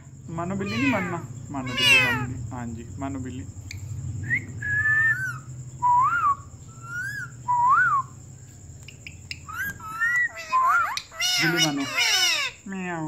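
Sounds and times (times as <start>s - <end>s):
whistled notes: 4.2s - 8.2s.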